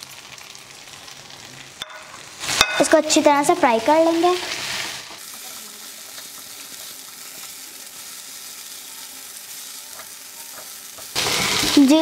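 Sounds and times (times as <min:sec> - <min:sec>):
vegetables sizzling in frying pan: 0:00.0 - 0:12.0
spatula scraping pan: 0:09.7 - 0:11.8.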